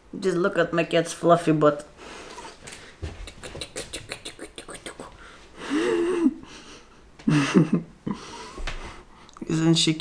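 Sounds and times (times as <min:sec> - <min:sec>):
mouth clicks: 0:02.7 - 0:05.1.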